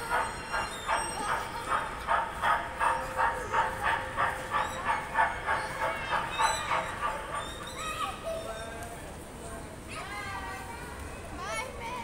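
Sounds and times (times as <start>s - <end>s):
loudspeaker steam train chugging: 0.0s - 8.5s.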